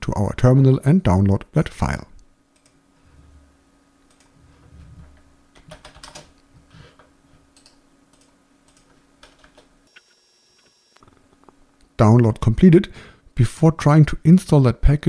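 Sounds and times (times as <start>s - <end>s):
keyboard typing: 5.6s - 6.4s, 7.5s - 9.7s.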